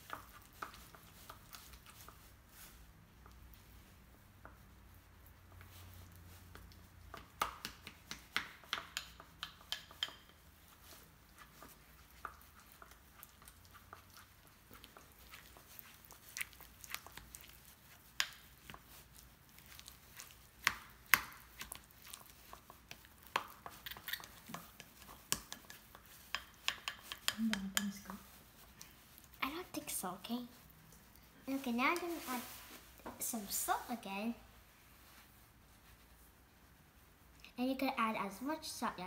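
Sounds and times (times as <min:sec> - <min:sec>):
spoon scraping bowl: 0:08.9 - 0:30.7.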